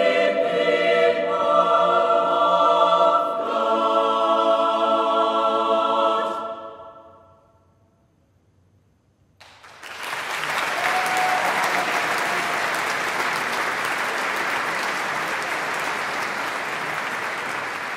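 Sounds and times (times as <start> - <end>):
audience applause: 9.4 - 17.9.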